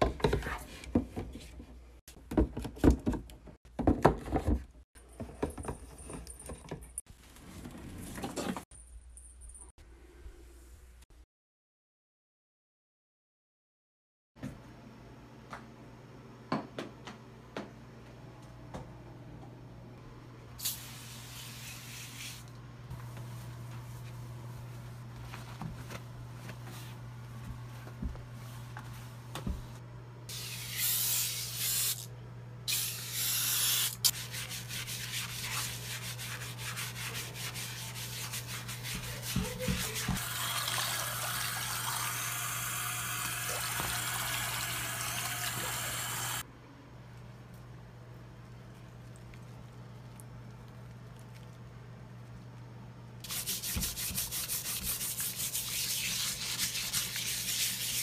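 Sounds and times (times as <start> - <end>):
scrubbing in a sink basin: 34.1 - 40.2, 53.2 - 58.0
fizzy soda pouring into sink: 40.2 - 46.4.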